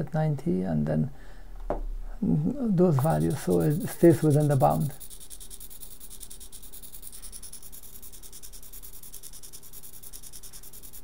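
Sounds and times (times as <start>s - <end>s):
servo motor buzzing and ticking: 3.0s - 11.0s.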